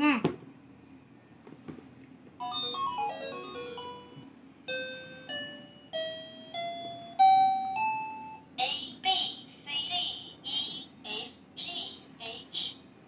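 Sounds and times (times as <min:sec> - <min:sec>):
toy laptop electronic tune: 0:02.4 - 0:08.4.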